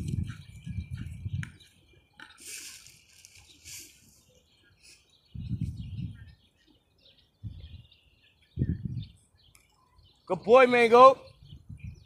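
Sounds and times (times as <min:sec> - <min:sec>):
small birds chirping: 0:00.0 - 0:12.0
high rustling hiss: 0:02.3 - 0:05.0.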